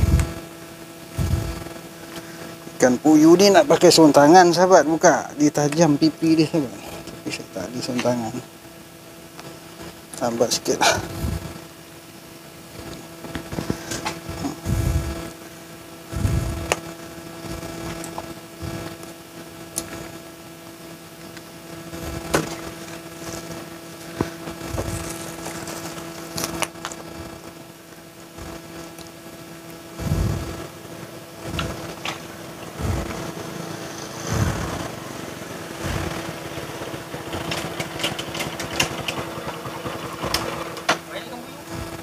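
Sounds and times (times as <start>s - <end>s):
steady machine hum: 0.0s - 42.0s.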